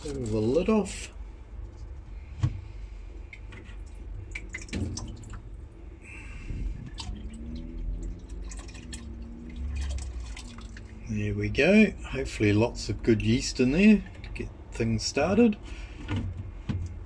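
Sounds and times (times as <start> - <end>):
liquid trickling and dripping: 3.2 - 11.2, 13.1 - 14.7.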